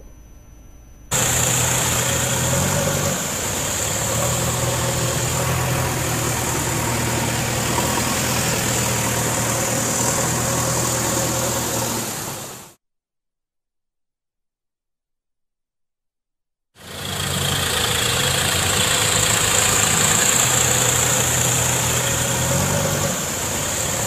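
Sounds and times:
tractor diesel engine running: 0:01.1 - 0:12.8, 0:16.8 - 0:24.0.

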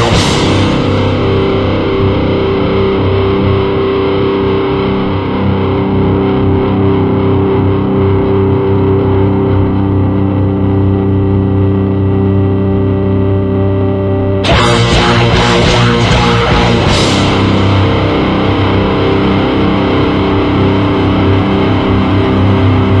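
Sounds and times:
distorted electric guitar droning: 0:00.0 - 0:23.0
drum crash: 0:14.5 - 0:18.1.

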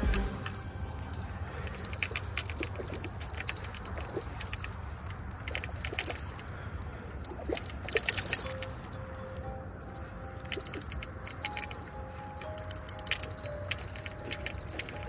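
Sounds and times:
high-pitched hum: 0:00.0 - 0:02.0.

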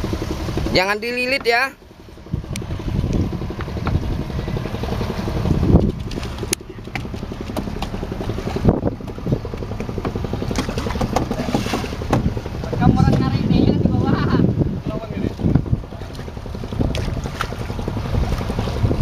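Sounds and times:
boat engine thudding: 0:00.0 - 0:19.0.

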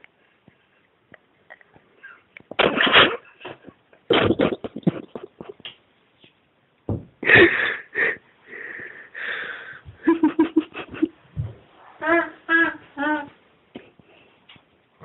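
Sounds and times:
stifled laughter: 0:02.1 - 0:05.6, 0:07.2 - 0:08.9, 0:10.0 - 0:11.2
short pitched giggles: 0:03.4 - 0:05.6.

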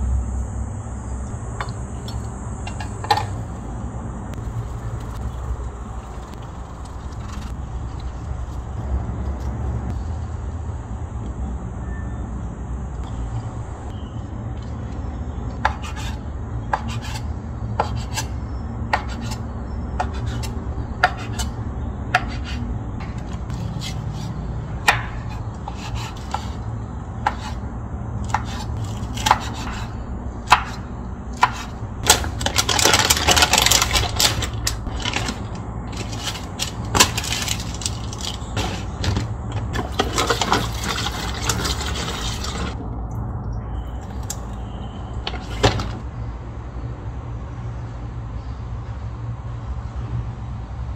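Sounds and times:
low background hum: 0:00.0 - 0:50.9
rubbing and scraping: 0:31.4 - 0:42.8.

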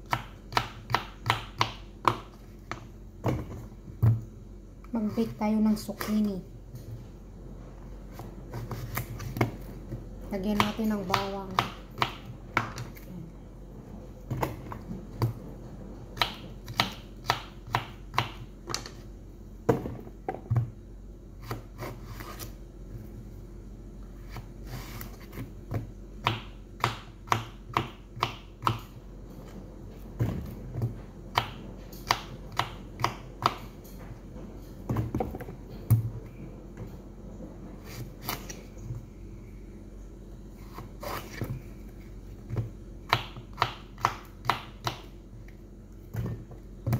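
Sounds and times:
knife chopping on wooden board: 0:00.0 - 0:04.2.

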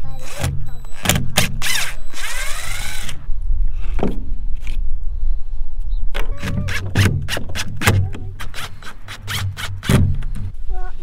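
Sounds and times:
cordless drill driving screws: 0:00.2 - 0:03.3, 0:08.4 - 0:10.0.

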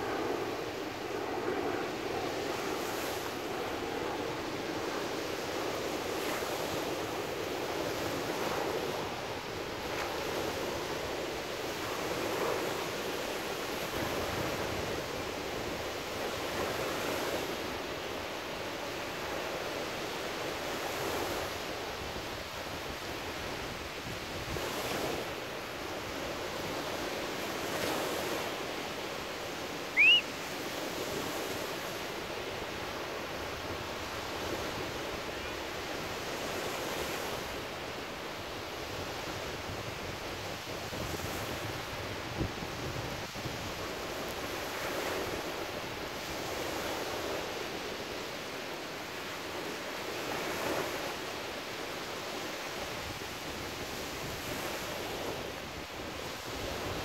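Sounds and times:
surf washing up on sand: 0:00.0 - 0:57.0
high rising chirp: 0:29.9 - 0:30.3.

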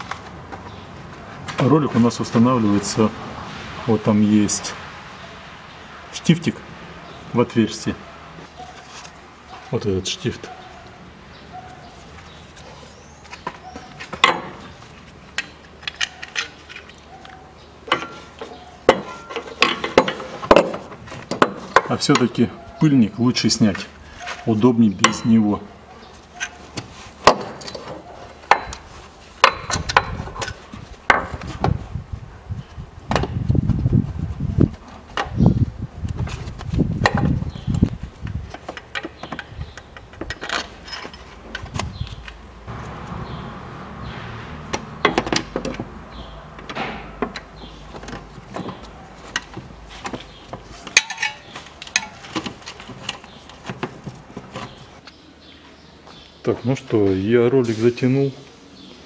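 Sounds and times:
rubbing and handling noise: 0:08.4 - 0:09.9, 0:26.0 - 0:29.5, 0:47.4 - 0:55.2
hand tools knocking and clacking: 0:13.3 - 0:14.6, 0:15.3 - 0:22.4, 0:25.0 - 0:25.4, 0:26.4 - 0:31.4, 0:38.3 - 0:41.9, 0:44.7 - 0:54.8.

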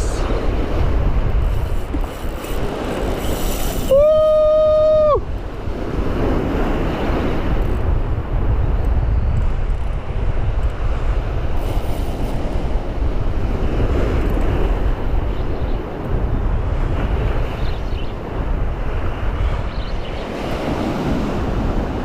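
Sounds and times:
wind buffeting microphone: 0:00.0 - 0:22.0.

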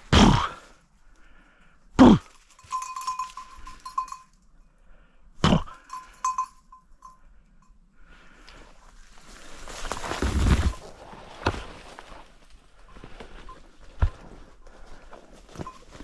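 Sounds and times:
dog collar bell jingling: 0:02.4 - 0:04.5, 0:05.7 - 0:07.2.

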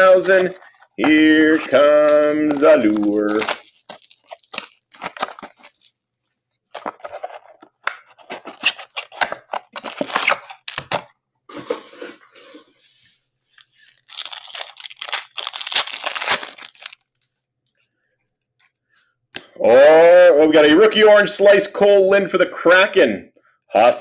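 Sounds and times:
plastic and foil packs crinkling: 0:00.0 - 0:06.0, 0:06.7 - 0:12.6, 0:13.5 - 0:17.2.

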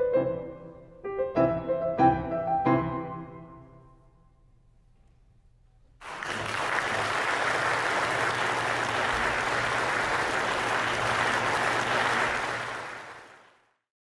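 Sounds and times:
audience applauding: 0:06.0 - 0:13.8.

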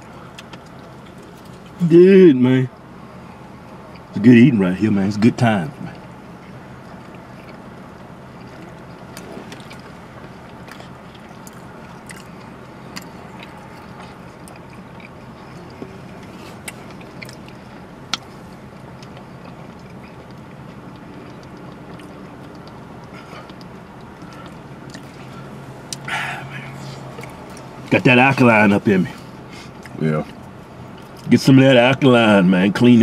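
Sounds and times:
car cabin hum: 0:00.0 - 0:33.0
chewing: 0:05.9 - 0:26.2, 0:26.8 - 0:27.8, 0:29.1 - 0:31.3.

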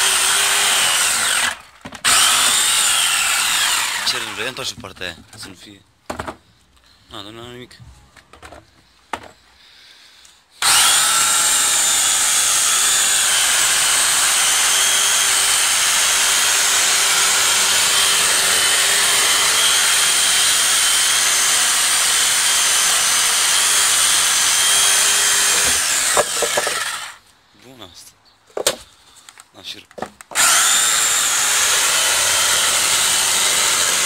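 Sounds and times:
electric saw cutting wood: 0:00.0 - 0:04.6, 0:10.6 - 0:27.2, 0:30.4 - 0:34.0.

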